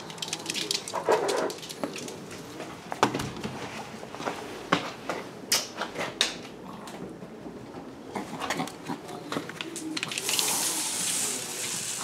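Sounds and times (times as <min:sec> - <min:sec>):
hiss: 0:10.2 - 0:12.0.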